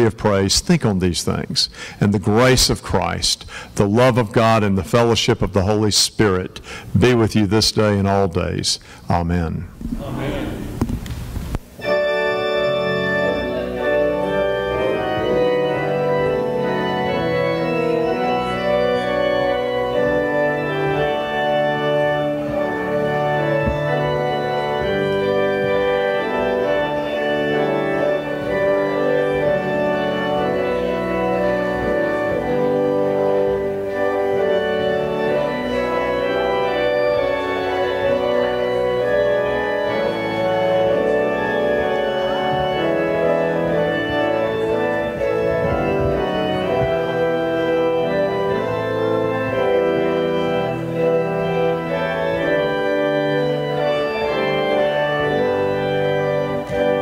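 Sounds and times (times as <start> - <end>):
church organ sustained chords: 0.0 - 10.8, 11.7 - 57.0
person saying amen: 9.3 - 10.8.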